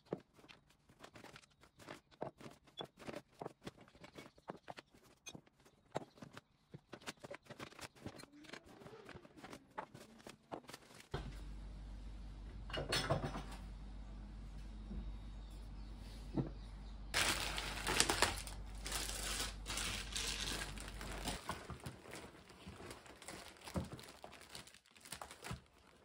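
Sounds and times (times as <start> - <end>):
steady low hum: 11.1 - 23.2
plastic bag rustle: 17.2 - 26.0.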